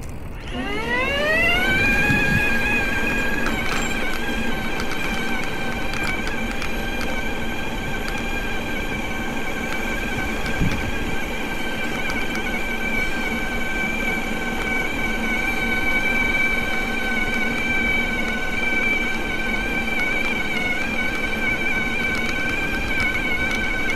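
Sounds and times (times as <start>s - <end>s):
electric motor whining: 0.0s - 23.9s
wind: 0.0s - 23.9s.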